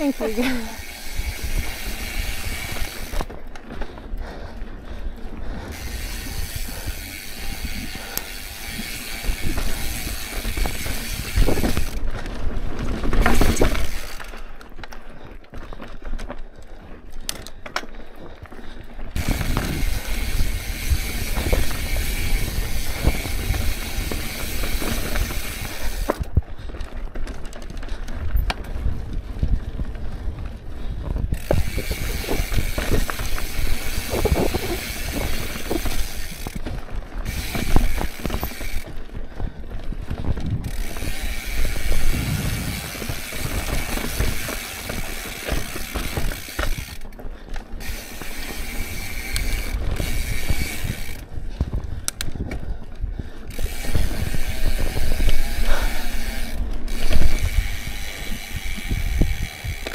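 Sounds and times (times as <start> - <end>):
tyres rattling on dirt trail: 0.0 - 59.9
bike bumps: 8.4 - 14.4, 19.2 - 28.7, 31.3 - 38.9, 39.9 - 47.2, 47.8 - 52.8, 53.5 - 59.9
freehub ticking: 40.2 - 52.6, 53.4 - 59.9.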